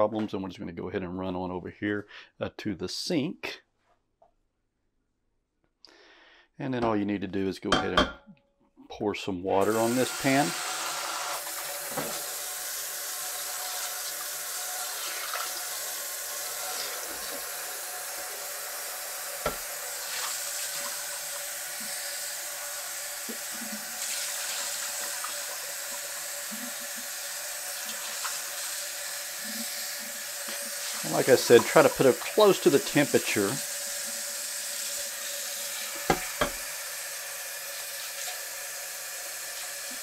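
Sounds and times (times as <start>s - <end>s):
tap water splashing into skillet: 11.4s - 12.4s, 19.4s - 21.0s, 35.8s - 36.7s.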